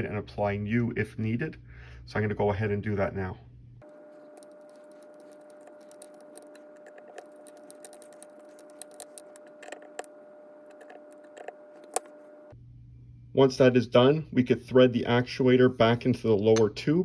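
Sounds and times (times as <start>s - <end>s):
steady hum: 3.5s - 14.2s.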